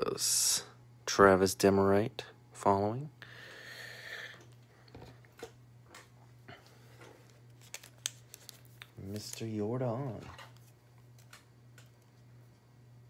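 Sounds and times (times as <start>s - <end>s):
cards sliding rustle: 7.1s - 11.4s
cards clicking and tapping: 7.6s - 9.5s.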